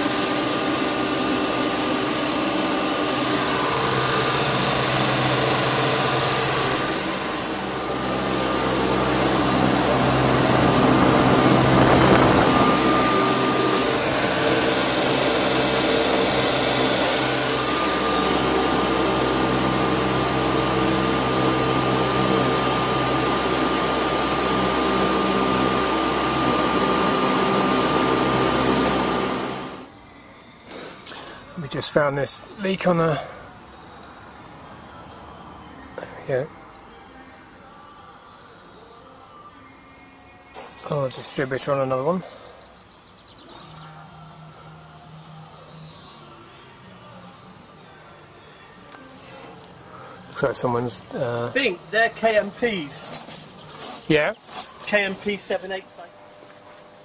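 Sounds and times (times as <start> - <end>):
compressor humming with high whine: 0.0 - 57.0.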